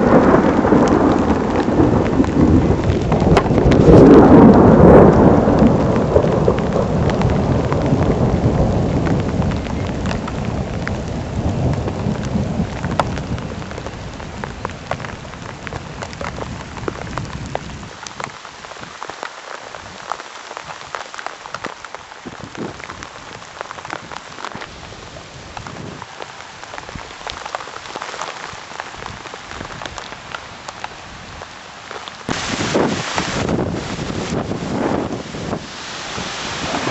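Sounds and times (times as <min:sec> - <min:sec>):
thunder rumbling: 0:00.0 - 0:17.9, 0:32.3 - 0:36.9
heavy rain pattering: 0:00.0 - 0:36.9
raindrops ticking close: 0:00.0 - 0:36.9.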